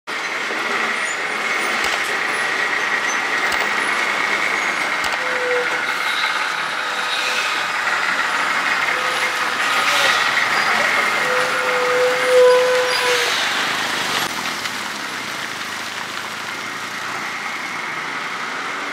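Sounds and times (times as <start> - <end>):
diesel lorry engine running: 0.1 - 18.9
brief clicks: 5.0 - 5.2.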